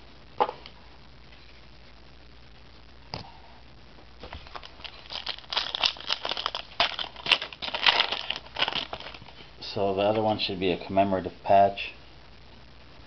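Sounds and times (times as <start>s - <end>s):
foil wrapper crinkling: 4.2s - 9.5s.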